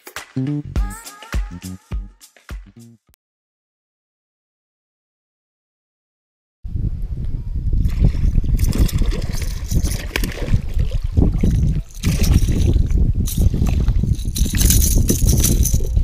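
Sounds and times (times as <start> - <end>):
low rumble on microphone: 6.7 - 16.0
fish splashing in water: 7.9 - 12.9.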